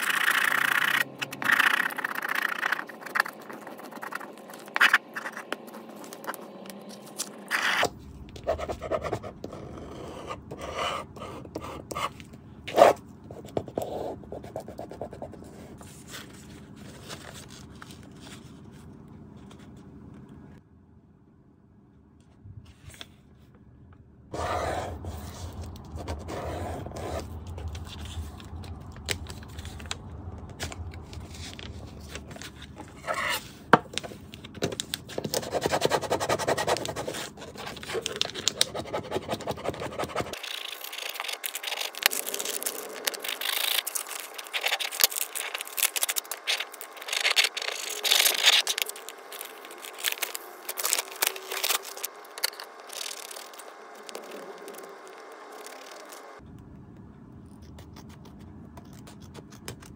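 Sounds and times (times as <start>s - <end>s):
paper and film rustling: 27.2s - 35.7s, 36.6s - 56.4s
film crinkling and crackling: 40.4s - 56.4s.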